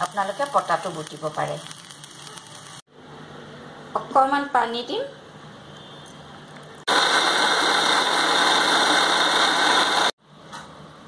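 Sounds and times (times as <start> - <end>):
mixer grinder running: 6.9 - 10.2.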